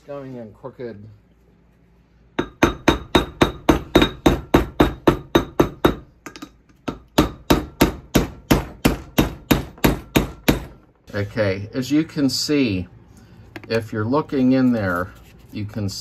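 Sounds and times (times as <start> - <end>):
hammer tapping on metal: 2.4 - 10.7.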